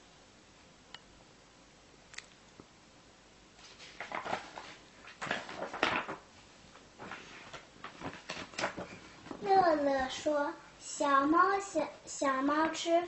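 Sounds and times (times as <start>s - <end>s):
book pages rustling and scraping: 3.6s - 9.9s
paper rustling: 3.6s - 10.1s.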